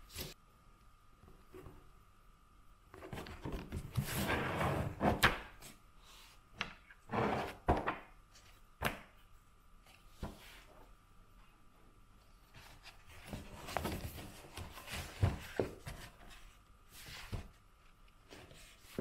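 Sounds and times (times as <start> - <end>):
rustling and sliding: 3.0 - 6.4, 12.3 - 19.0.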